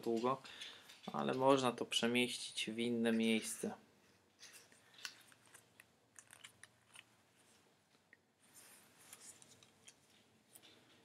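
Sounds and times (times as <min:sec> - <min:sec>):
strap rustling: 0:03.2 - 0:11.0.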